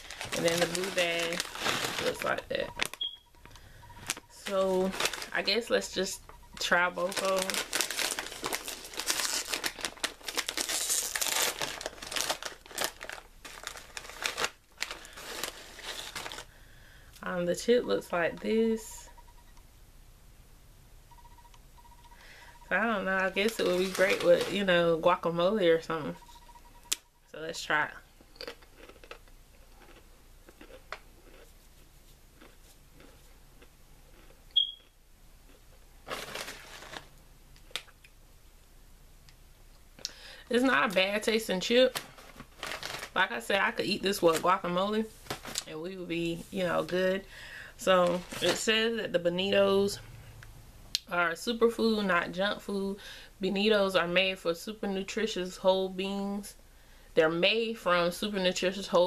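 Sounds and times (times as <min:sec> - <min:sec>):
plastic snack bag crinkling: 0:00.0 - 0:16.6, 0:22.7 - 0:24.9, 0:28.4 - 0:31.5, 0:36.0 - 0:38.0, 0:40.4 - 0:47.0, 0:47.8 - 0:48.8
chip snapping and crunching: 0:28.4 - 0:31.5.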